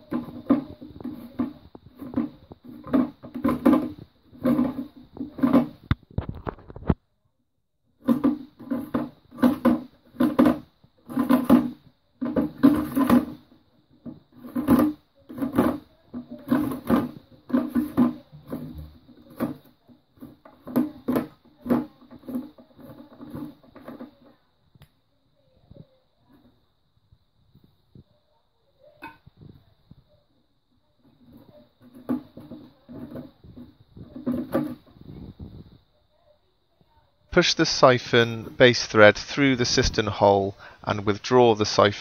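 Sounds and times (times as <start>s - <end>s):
plastic nut scraping on thread: 0.0s - 7.0s, 8.0s - 24.4s, 31.0s - 35.7s.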